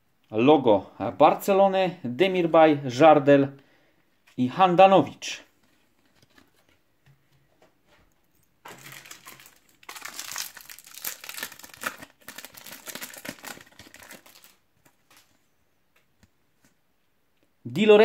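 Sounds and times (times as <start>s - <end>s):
plastic wrapper crinkling: 8.6s - 15.5s.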